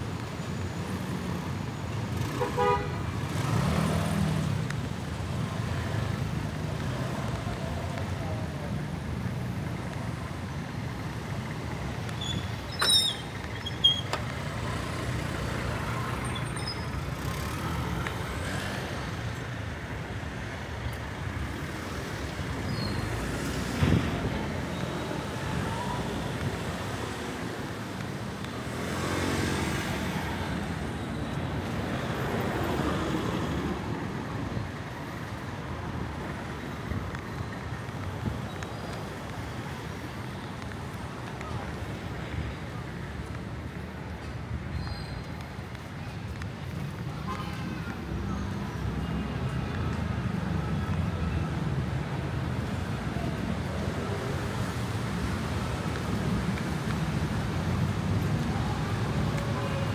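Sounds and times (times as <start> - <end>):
traffic passing: 0.0 - 59.9.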